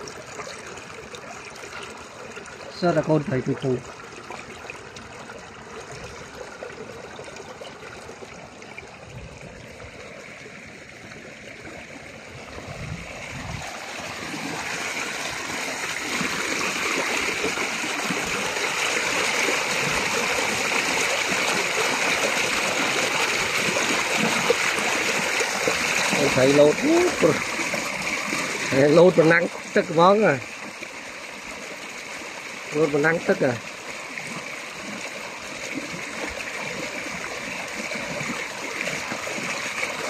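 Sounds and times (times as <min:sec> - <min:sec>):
water spilling from pipe: 0:00.0 - 0:40.0
runoff rushing and splashing: 0:08.0 - 0:40.0.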